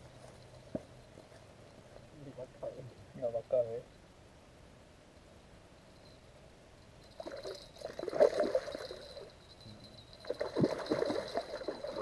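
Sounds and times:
water splashing in shallows: 10.2s - 12.0s.

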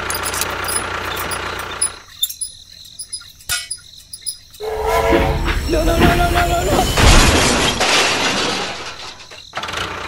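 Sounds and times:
engine running: 0.0s - 2.1s
faint high chirps and clicks: 0.1s - 4.6s.

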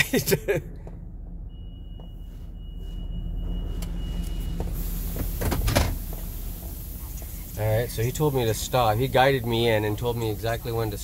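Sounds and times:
van engine running low: 0.0s - 11.0s
hiss: 4.8s - 10.8s
water jets spraying: 4.8s - 11.0s.

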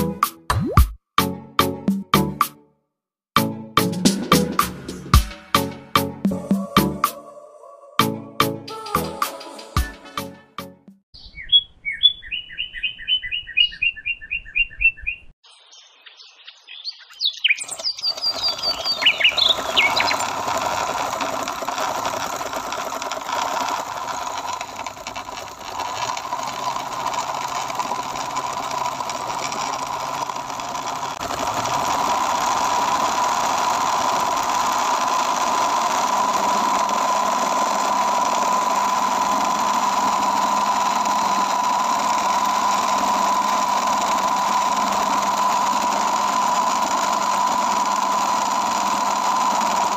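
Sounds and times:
bird-like chirps: 11.2s - 20.3s
small motor whirring and whining: 17.6s - 49.9s.

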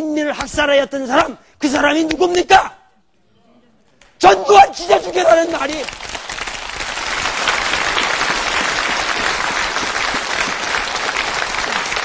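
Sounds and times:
audience applauding: 5.0s - 12.0s.

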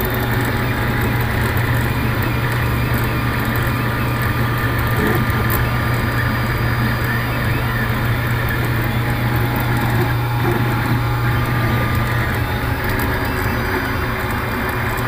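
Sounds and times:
low hum: 0.0s - 15.0s
stepper motors whirring: 0.0s - 15.0s.

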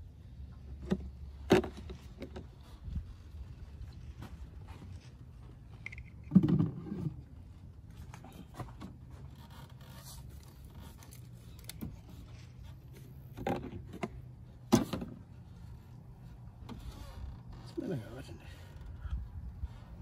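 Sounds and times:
plastic bottle knocking and scraping: 0.8s - 2.6s, 5.8s - 7.3s.

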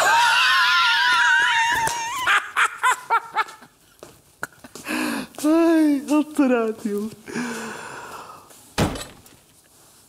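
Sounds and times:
man shrieking: 0.0s - 2.3s.

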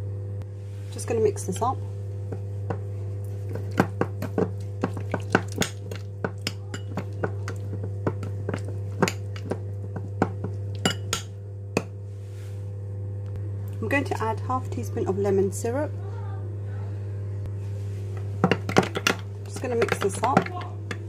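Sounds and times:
low hum: 0.0s - 21.0s
spoon clinking against glass bowl: 10.8s - 11.3s.

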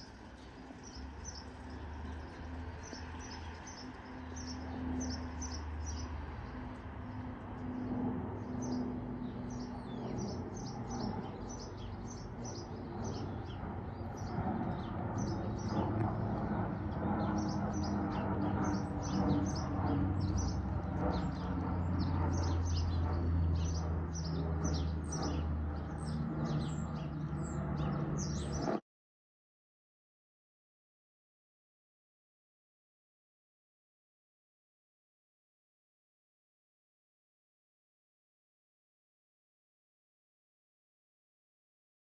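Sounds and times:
birds chirping: 0.0s - 28.8s
turboprop airliner droning overhead: 0.0s - 28.8s.

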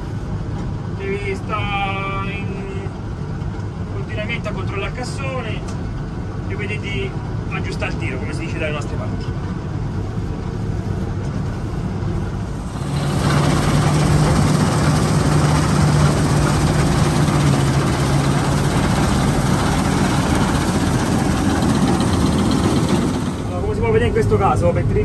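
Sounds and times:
combine harvester engine drone: 0.0s - 25.0s
low hum: 9.7s - 25.0s
rushing hiss: 12.5s - 23.6s.

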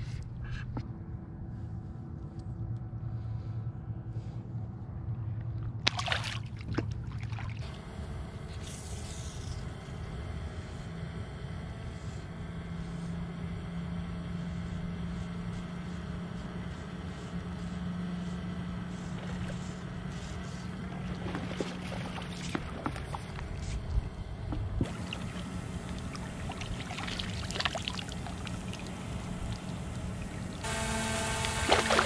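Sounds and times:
small boat motor humming: 0.0s - 32.0s
water splashing against boat: 5.8s - 7.7s, 20.7s - 32.0s.

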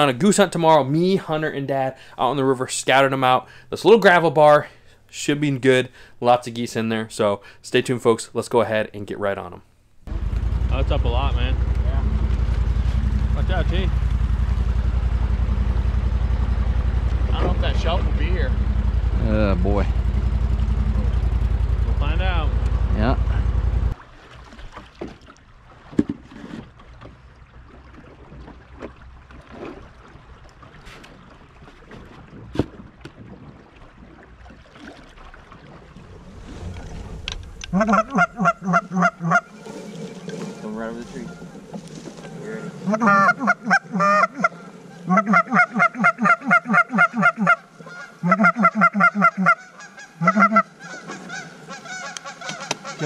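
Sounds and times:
water wash: 10.1s - 49.0s
knocks and rustles in boat: 16.9s - 18.1s, 24.0s - 38.1s, 39.5s - 42.9s
goose honking: 37.6s - 53.0s.

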